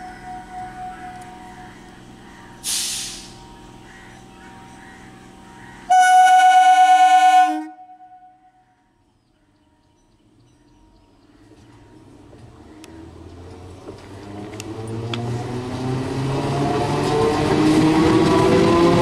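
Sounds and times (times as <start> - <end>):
high-pitched train horn blast: 0.0 - 1.8, 5.9 - 8.6
low hum of standing train: 0.0 - 19.0
hissing air burst: 2.6 - 3.4.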